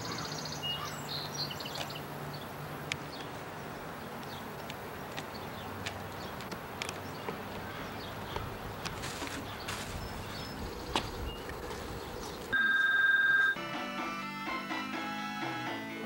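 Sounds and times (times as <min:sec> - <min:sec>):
electronic beep: 0:12.6 - 0:13.6
music: 0:13.6 - 0:16.0.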